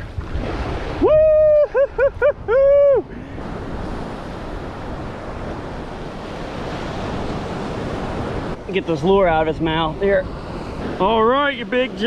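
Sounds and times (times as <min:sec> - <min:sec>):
surf breaking on beach: 0:00.0 - 0:12.0
wind on microphone: 0:00.0 - 0:12.0
man whooping: 0:01.0 - 0:03.1.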